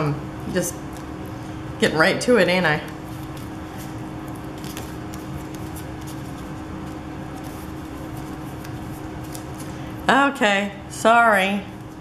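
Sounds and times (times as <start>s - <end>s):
steady low hum: 0.0s - 12.0s
paper rustling and ticking: 2.9s - 9.7s.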